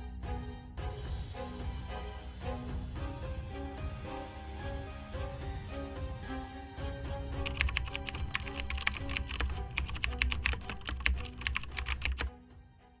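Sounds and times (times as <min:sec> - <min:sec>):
background music: 0:00.0 - 0:13.0
keyboard typing clicks: 0:07.4 - 0:12.3.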